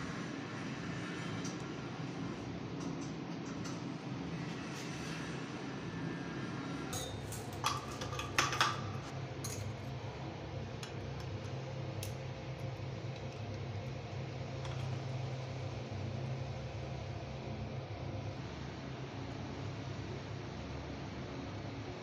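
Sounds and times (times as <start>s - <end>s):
metal shower fittings clinking: 7.0s - 9.7s.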